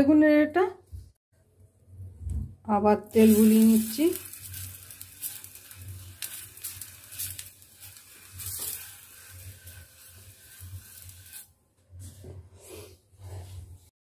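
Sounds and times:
oil sizzling on a hot griddle: 3.1 - 11.6.

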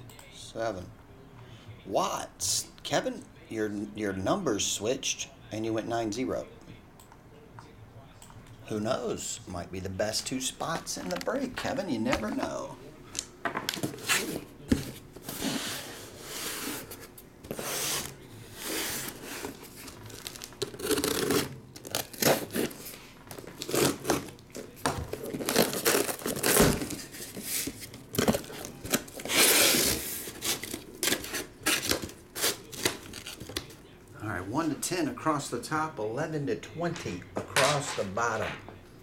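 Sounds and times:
packing tape ripping: 18.0 - 24.5, 25.1 - 33.7
cardboard flaps tearing and rustling: 25.1 - 33.7.

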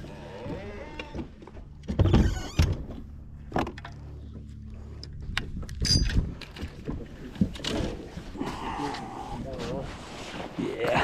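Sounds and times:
boat motor humming: 0.0 - 9.4
knocks and clunks of gear: 0.4 - 8.0.

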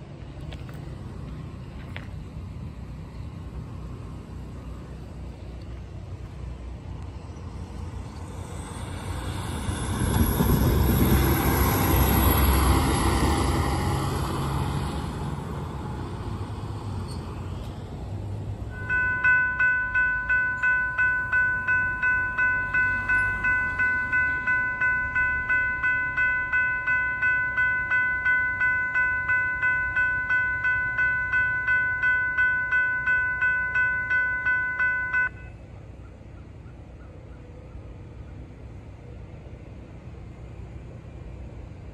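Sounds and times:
rumble: 0.0 - 36.6
railroad crossing bell ringing: 8.8 - 16.1, 18.7 - 35.7.

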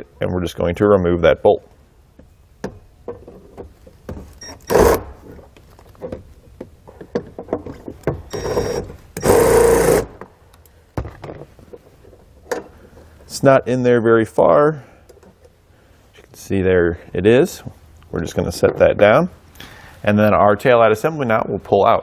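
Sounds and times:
cordless drill spinning: 8.3 - 10.1.

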